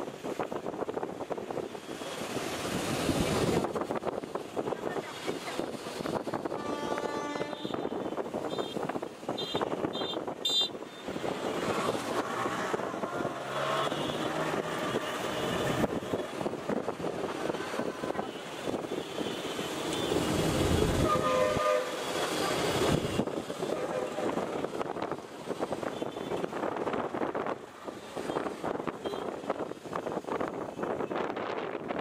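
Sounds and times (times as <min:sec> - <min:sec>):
train rumbling over tracks: 0:02.4 - 0:10.4, 0:11.0 - 0:32.0
train horn: 0:06.5 - 0:08.0, 0:21.0 - 0:22.1, 0:23.8 - 0:24.4.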